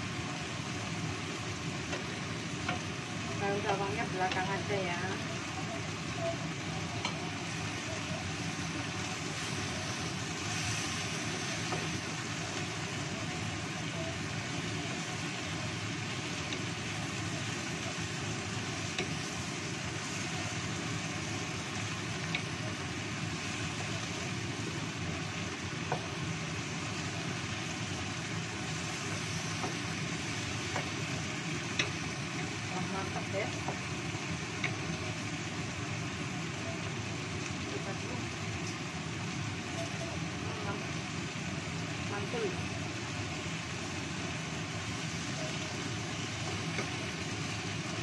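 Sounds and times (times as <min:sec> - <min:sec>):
food hissing in a wok: 0:00.0 - 0:48.0
spatula tapping pan: 0:01.8 - 0:04.6, 0:07.0 - 0:07.2, 0:18.8 - 0:20.2, 0:25.8 - 0:26.2, 0:28.0 - 0:33.9, 0:34.5 - 0:34.9, 0:46.4 - 0:47.2.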